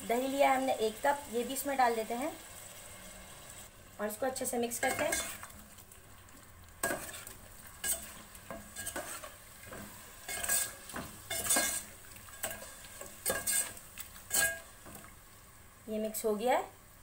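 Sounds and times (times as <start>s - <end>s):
metal spoon scraping a steel pot: 4.8s - 5.5s, 6.8s - 9.3s, 10.3s - 13.7s, 14.3s - 14.6s.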